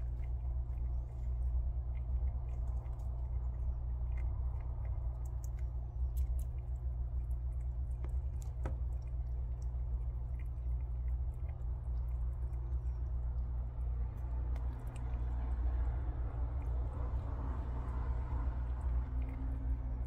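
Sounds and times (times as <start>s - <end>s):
prairie dog gnawing a nut: 0.0s - 20.0s
steady low hum: 0.0s - 20.0s.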